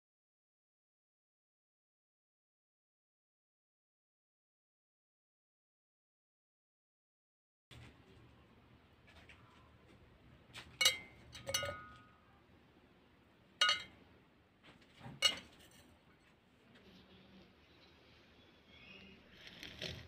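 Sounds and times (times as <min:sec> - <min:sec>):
spoon clinking against glass mug: 0:10.8 - 0:12.2, 0:13.6 - 0:14.0, 0:15.2 - 0:15.8.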